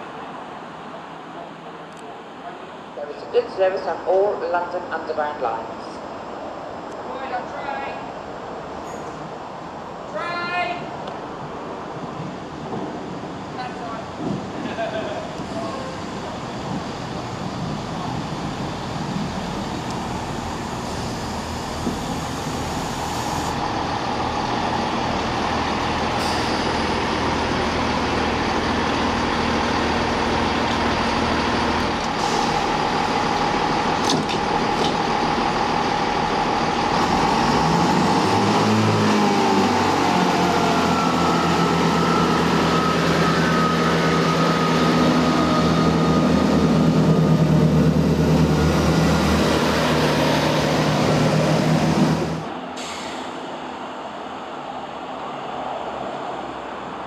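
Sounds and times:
diesel train engines running: 0.0s - 57.0s
train whine pulling away: 11.2s - 57.0s.

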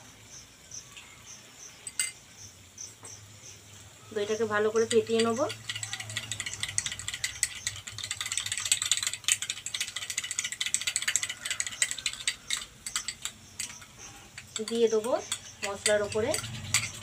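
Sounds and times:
spoon beating yogurt in cup: 4.5s - 17.0s.

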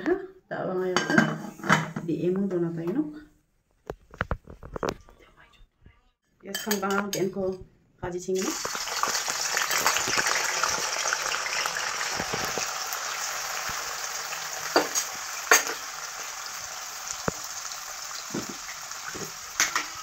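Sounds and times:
food sizzling in hot oil: 8.4s - 20.0s.

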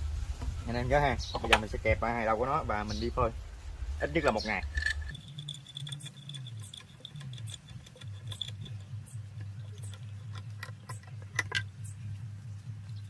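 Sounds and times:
steady low hum: 0.0s - 13.0s
metal clamps clicking: 4.7s - 8.9s, 9.7s - 11.7s.

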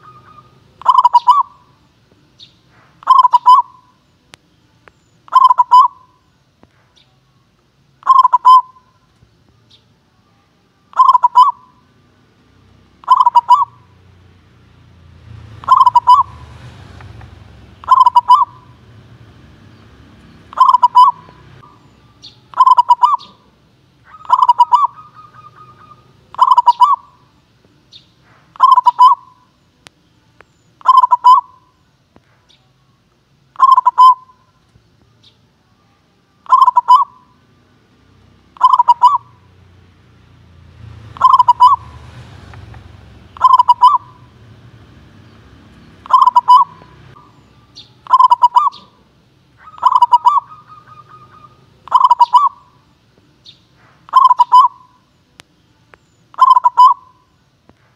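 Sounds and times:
dove cooing: 0.0s - 1.8s, 2.8s - 4.0s, 5.3s - 6.3s, 8.0s - 9.0s, 10.9s - 11.8s, 12.9s - 14.0s, 15.4s - 27.3s, 28.4s - 29.5s, 30.8s - 31.7s, 33.6s - 34.5s, 36.4s - 37.4s, 38.6s - 39.5s, 41.0s - 52.8s, 53.8s - 55.0s, 56.3s - 57.3s.

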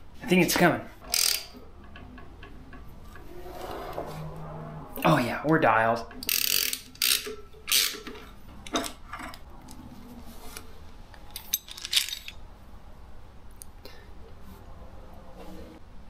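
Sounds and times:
metal parts clinking: 1.0s - 2.0s, 6.2s - 9.4s, 11.3s - 12.4s.

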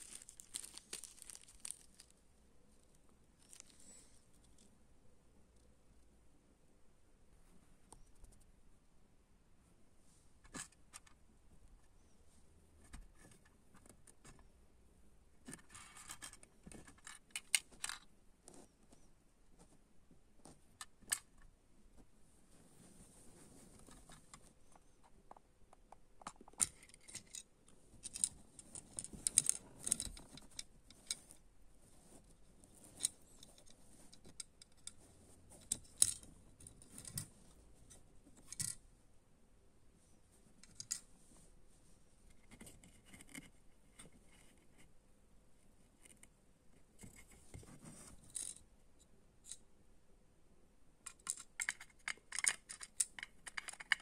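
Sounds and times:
small plastic parts clicking: 23.9s - 31.4s, 35.6s - 37.3s, 51.0s - 54.0s.

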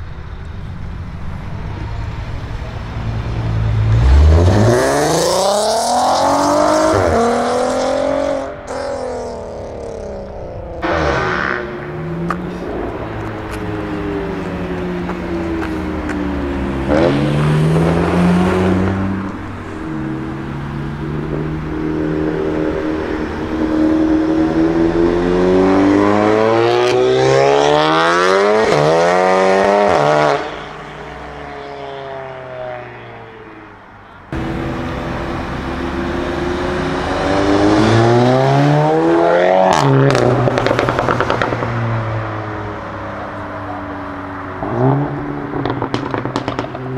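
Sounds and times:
car engine accelerating hard: 1.3s - 30.7s, 34.3s - 46.9s
exhaust cracks: 8.5s - 17.0s, 39.7s - 42.2s, 44.6s - 46.9s.

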